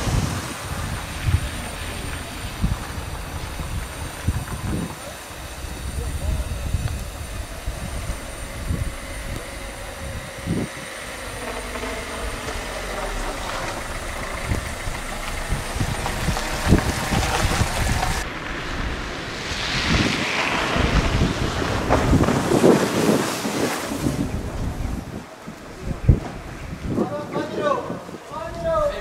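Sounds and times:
low thumps: 0:00.0 - 0:22.7
traffic noise: 0:00.0 - 0:29.0
wind buffeting microphone: 0:00.0 - 0:29.0.

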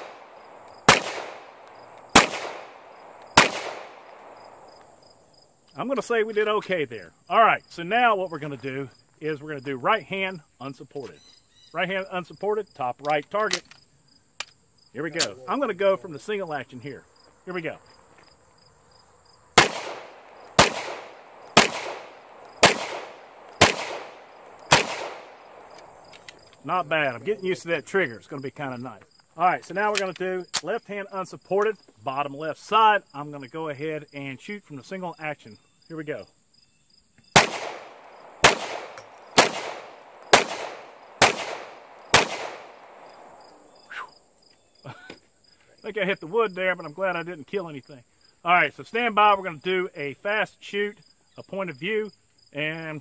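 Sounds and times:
pistol shots with echo: 0:00.0 - 0:04.7, 0:19.6 - 0:25.8, 0:37.3 - 0:43.4
crickets chirping: 0:00.0 - 0:53.0.

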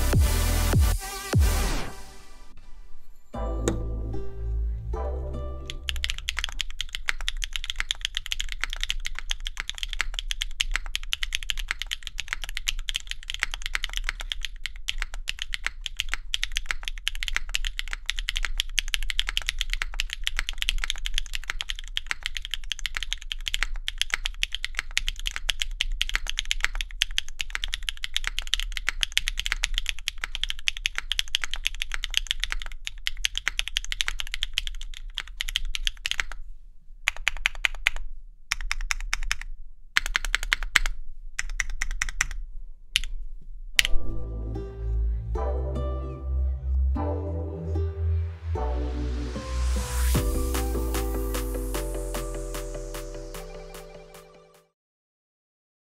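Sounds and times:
mechanical keyboard typing: 0:05.7 - 0:36.4, 0:37.1 - 0:42.4.

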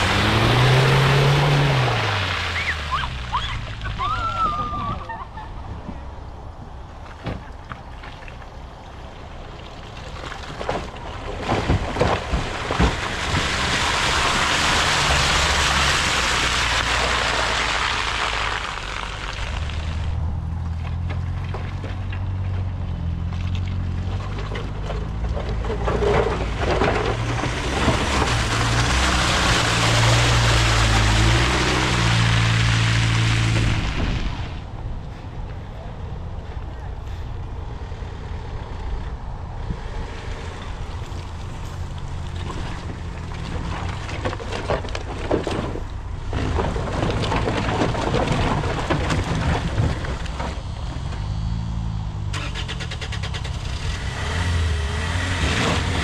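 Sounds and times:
car engine revving: 0:00.0 - 0:03.2, 0:26.0 - 0:34.4, 0:50.6 - 0:56.0
wheels churning mud and water: 0:00.0 - 0:56.0.

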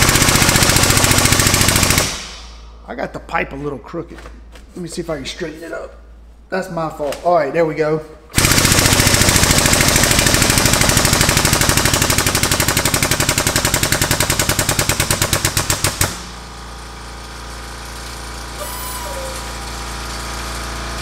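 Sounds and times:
steady low hum: 0:02.0 - 0:08.4
air pump chattering: 0:08.4 - 0:16.2.

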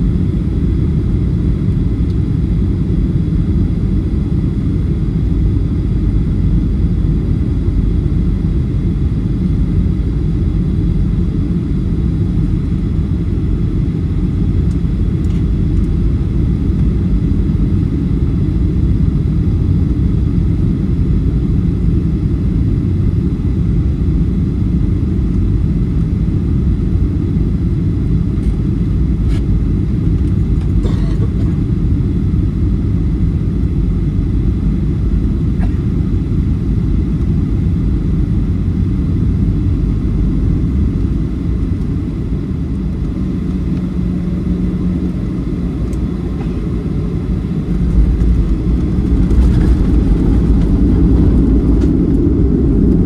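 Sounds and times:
airliner cabin rumble: 0:00.0 - 0:53.0
jet touching down and rolling: 0:45.8 - 0:53.0.

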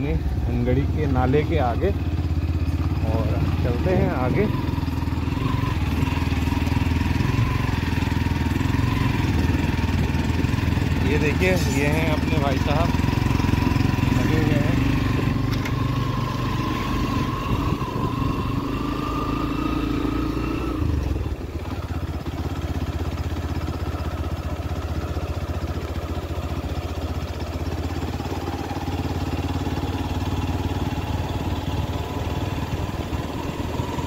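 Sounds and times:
vehicle engine running: 0:00.0 - 0:34.0.

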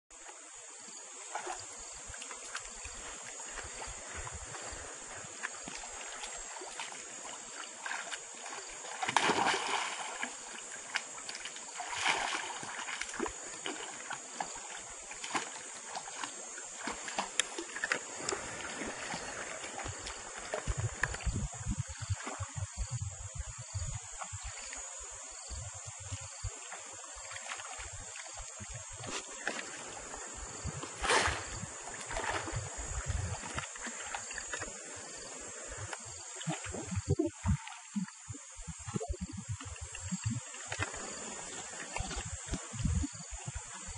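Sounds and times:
insects buzzing: 0:00.1 - 0:43.9
monkeys splashing in water: 0:05.8 - 0:20.8.

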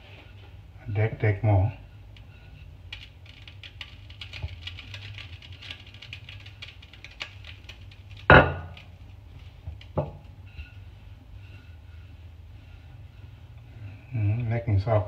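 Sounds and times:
rolling pin knocking counter: 0:08.3 - 0:08.8.

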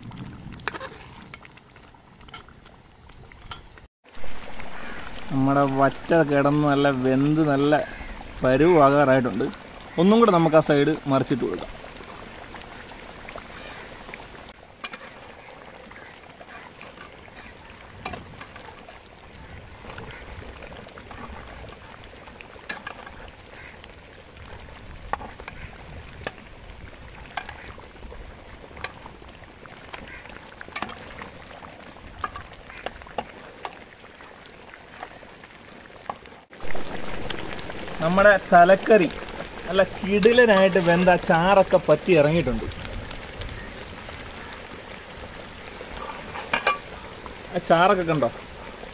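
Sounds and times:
curry bubbling in a pot: 0:00.0 - 0:48.9.

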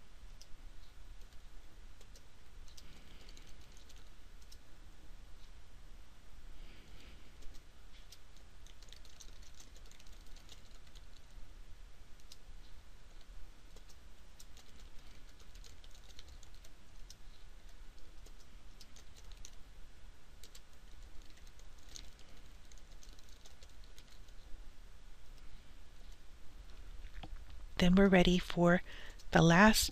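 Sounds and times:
faint steady hum: 0:00.0 - 0:29.9
computer keyboard typing: 0:02.0 - 0:04.6, 0:07.4 - 0:11.4, 0:12.2 - 0:12.4, 0:13.1 - 0:19.6, 0:20.4 - 0:24.5.

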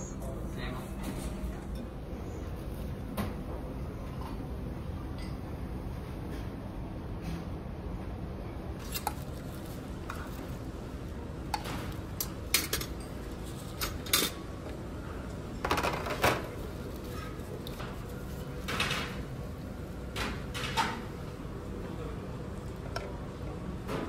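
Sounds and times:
steady low hum: 0:00.0 - 0:24.0
dishes and metal utensils clinking: 0:05.1 - 0:05.5, 0:11.5 - 0:14.5.

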